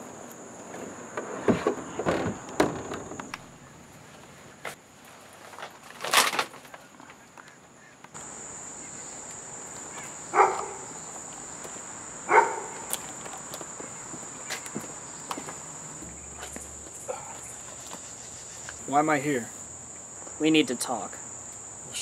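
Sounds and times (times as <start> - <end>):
insects trilling: 5.6 - 22.0.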